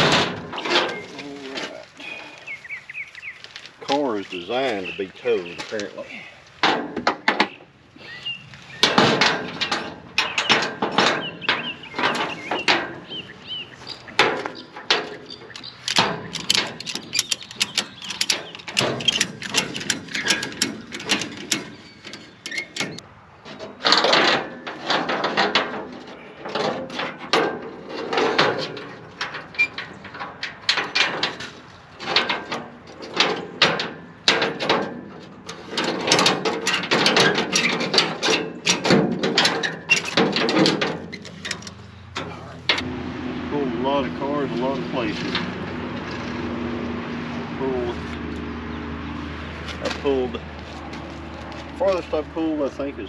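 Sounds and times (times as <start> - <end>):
metal clanks and knocks: 0.0 - 1.8, 6.6 - 7.6, 8.8 - 46.6.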